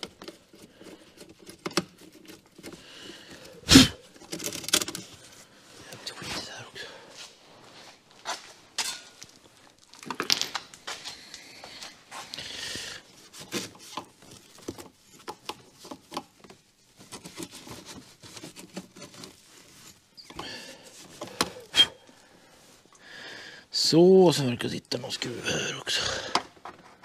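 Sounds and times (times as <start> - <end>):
tools clicking and knocking: 0.0 - 3.4, 4.2 - 5.1, 8.8 - 10.8.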